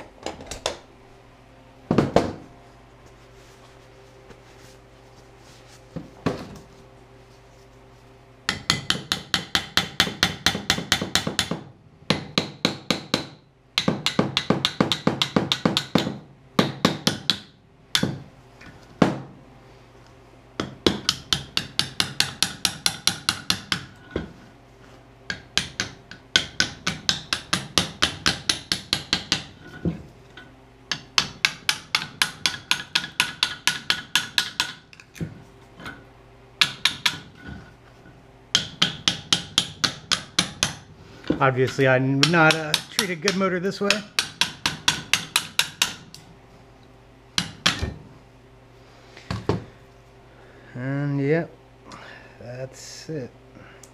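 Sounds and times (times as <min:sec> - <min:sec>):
rapid metal-on-metal knocking: 0:25.3 - 0:29.5, 0:30.9 - 0:34.9, 0:38.5 - 0:40.9, 0:41.7 - 0:46.1.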